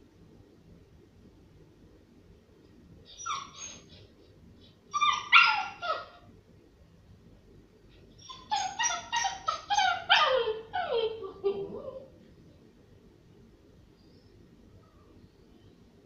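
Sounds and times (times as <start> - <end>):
dog whining: 3.0 - 4.2, 4.9 - 6.3, 8.2 - 12.2.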